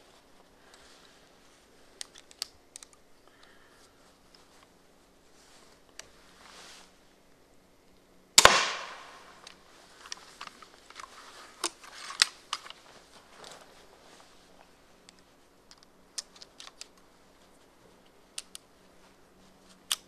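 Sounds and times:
crossbow mechanism clicking: 2.0 - 3.5, 7.9 - 12.8, 15.0 - 17.1, 18.0 - 18.7, 19.8 - 20.0.

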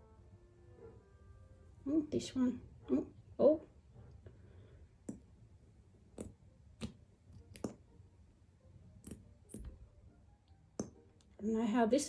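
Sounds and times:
plastic paint bottle clicks and pops: 6.1 - 7.8, 10.8 - 11.0.

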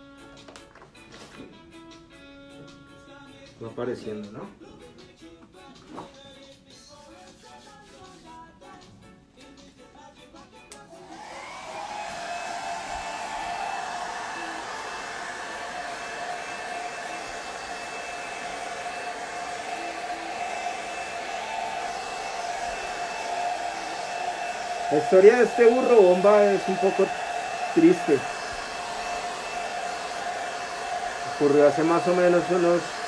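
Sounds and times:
hair dryer whining and blowing: 10.9 - 33.0.

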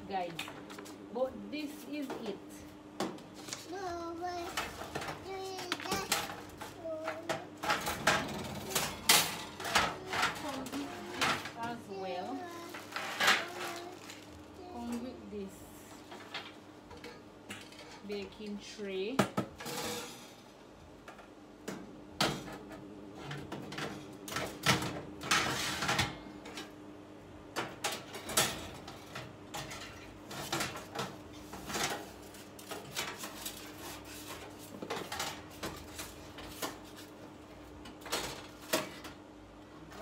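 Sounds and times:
metal oven racks clanking: 7.6 - 12.2.

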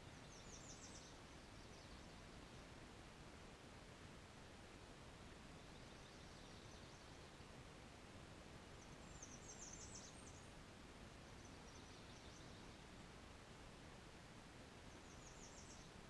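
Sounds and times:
low background hiss: 0.0 - 16.0
small bird chirping: 8.8 - 10.5.

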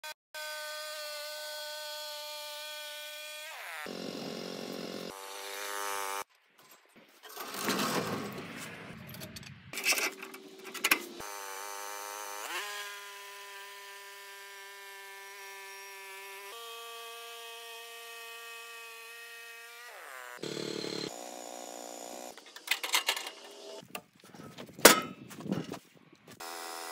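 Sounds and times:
bandsaw mill engine and blade: 0.4 - 6.3, 10.4 - 23.8, 26.4 - 26.9
metal clanks and rattling: 6.6 - 11.2, 22.4 - 23.5, 24.8 - 25.7.

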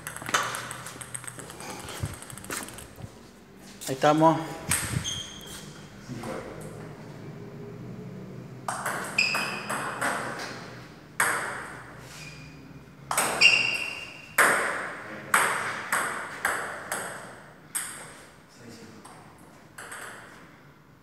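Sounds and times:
ping pong ball bouncing on table: 0.0 - 2.9, 4.7 - 5.1, 8.7 - 10.4, 11.2 - 11.8, 13.1 - 18.2, 19.0 - 20.3
ping pong ball hitting paddles: 0.0 - 3.1, 4.6 - 5.4, 8.6 - 12.0, 13.1 - 18.3, 19.0 - 20.4.

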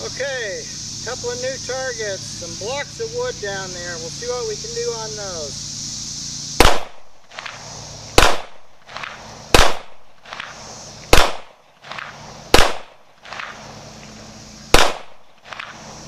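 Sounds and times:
pistol shots with echo: 6.6 - 7.0, 8.2 - 10.5, 11.1 - 13.6, 14.7 - 15.7.

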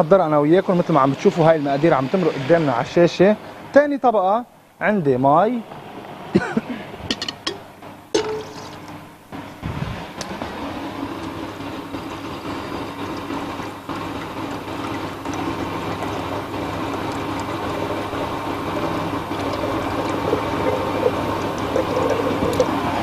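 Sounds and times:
electric blender running: 9.4 - 23.0.

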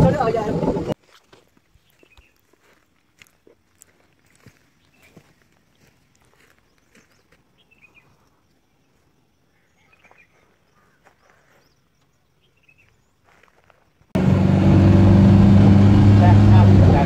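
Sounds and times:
faint bird chirps: 4.8 - 5.3, 6.3 - 13.5.

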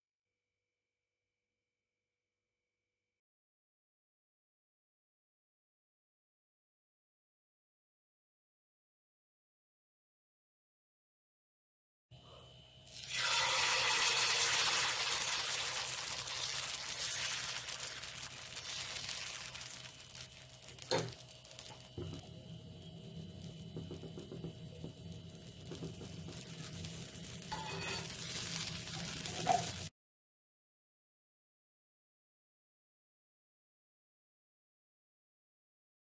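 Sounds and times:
batter sizzling on hot iron griddle: 12.9 - 29.9.

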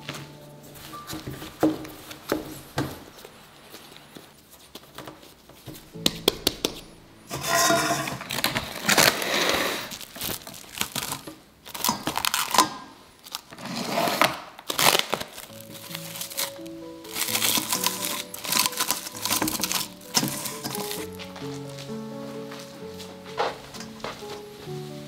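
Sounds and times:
plastic cling wrap crinkling: 7.3 - 25.0.

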